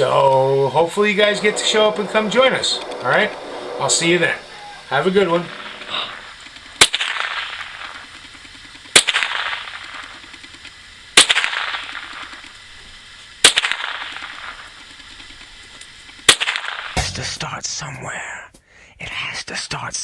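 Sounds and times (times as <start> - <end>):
rifle shots: 5.5 - 8.2, 8.9 - 10.2, 11.2 - 12.4, 13.4 - 14.6, 16.3 - 17.0.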